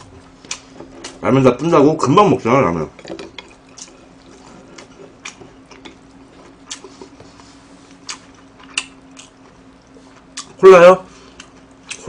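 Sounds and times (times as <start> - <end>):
faint steady hum: 0.0 - 12.0
chewing noodles with mouth smacks: 3.1 - 10.6.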